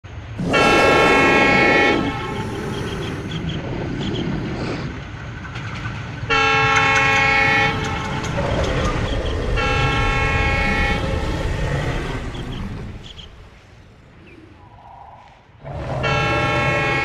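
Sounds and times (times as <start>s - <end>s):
train rumbling: 0.1s - 17.0s
locomotive horn blasts: 0.4s - 3.0s, 6.3s - 8.4s, 9.5s - 11.0s, 16.0s - 17.0s.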